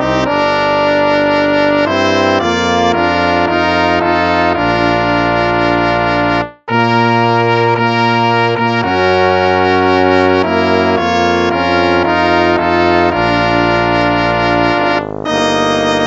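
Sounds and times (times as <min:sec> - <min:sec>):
brass hymn chords: 0:00.0 - 0:16.0.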